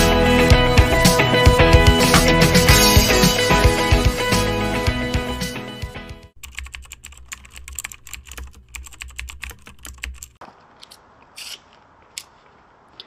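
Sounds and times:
background music: 0.0 - 6.4
keyboard typing: 6.4 - 10.4.

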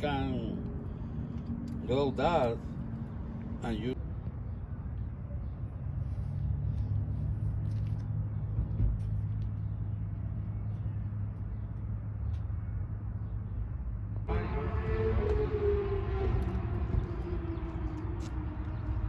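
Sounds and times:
steady low rumble: 6.0 - 19.0.

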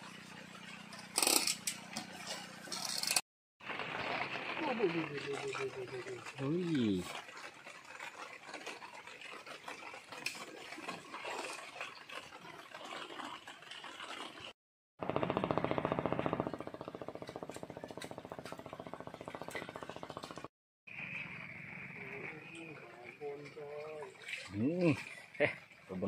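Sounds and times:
light rain on water: 3.6 - 14.5, 22.0 - 26.0
fast mechanical pulsing: 15.0 - 20.5.

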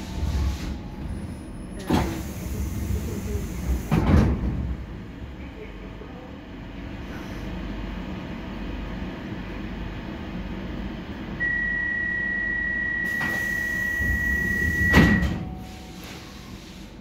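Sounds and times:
low hum of stationary train: 0.0 - 17.0
high door warning beep: 11.4 - 15.7.

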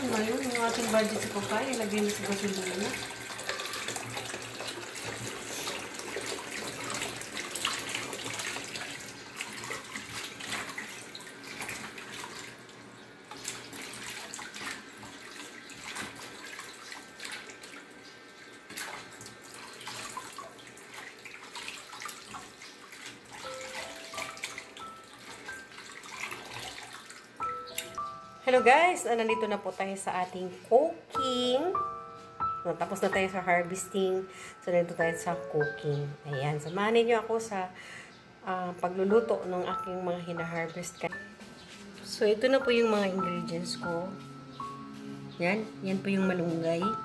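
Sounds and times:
tap water running into basin: 0.0 - 28.1.

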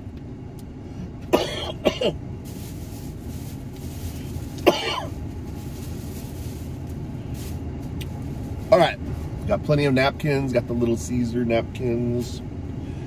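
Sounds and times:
steady low hum: 0.0 - 13.0
man coughing: 1.3 - 2.2, 4.6 - 5.2.

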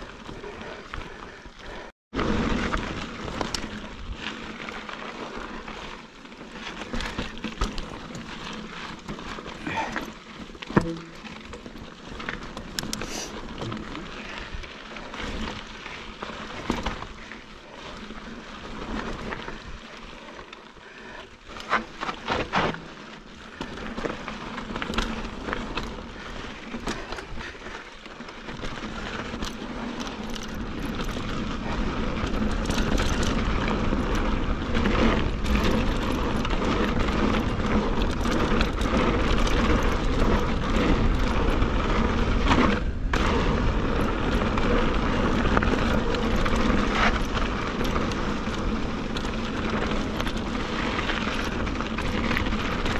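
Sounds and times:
bike knocks and rattles: 6.5 - 17.4, 21.6 - 52.9.

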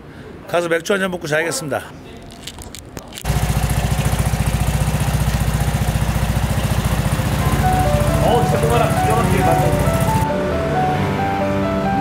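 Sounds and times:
scooter engine putter: 2.4 - 10.2.

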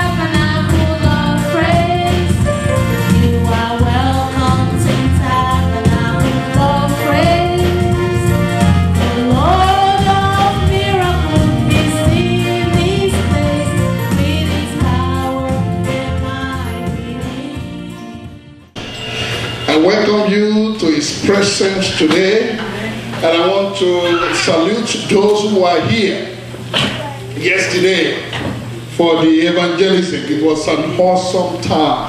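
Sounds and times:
gospel song vocals: 0.0 - 18.2
steady bass: 0.0 - 18.6.

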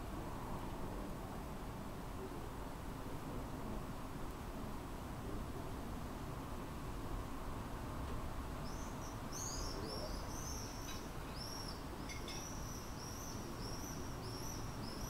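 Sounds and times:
small bird chirping: 8.6 - 15.0.

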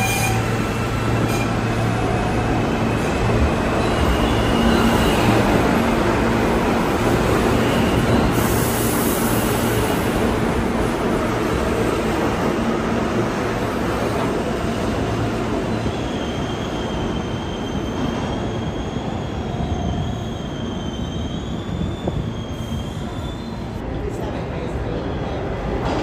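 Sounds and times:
subway train rumbling: 0.0 - 26.0.

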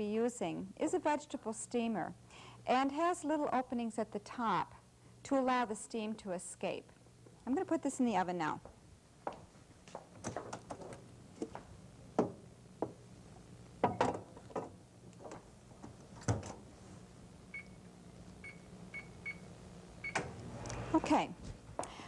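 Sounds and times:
microwave keypad beeps: 17.5 - 17.8, 18.4 - 19.4
microwave door shutting: 20.0 - 20.4.

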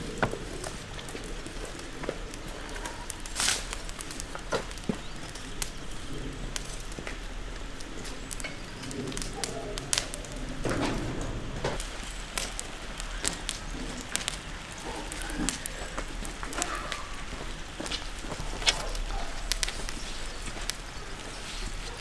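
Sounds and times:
footsteps on paving: 15.4 - 22.0.

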